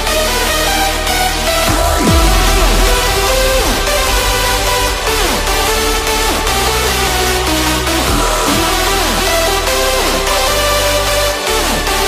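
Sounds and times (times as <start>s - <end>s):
electronic dance music: 0.0s - 12.0s
heavy deep bass: 0.0s - 12.0s
falling synth sweeps: 1.5s - 10.2s.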